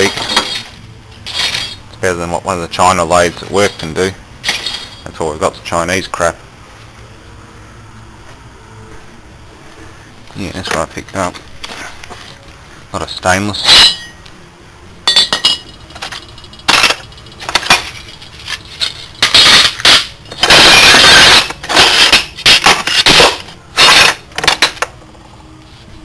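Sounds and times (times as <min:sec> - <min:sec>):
metal scraping rattle: 0:00.0 - 0:02.0, 0:15.1 - 0:24.8.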